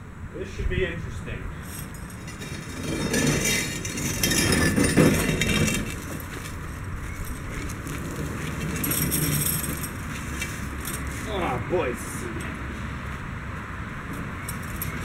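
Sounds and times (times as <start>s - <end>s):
metal scraping and rattling: 1.6s - 11.4s, 14.4s - 15.0s
mower dragged over concrete: 1.7s - 11.4s.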